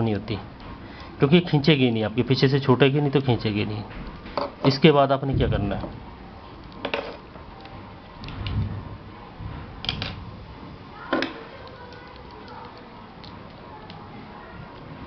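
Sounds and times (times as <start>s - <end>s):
soft low thump: 5.3s - 6.1s
wire being handled: 5.8s - 15.0s.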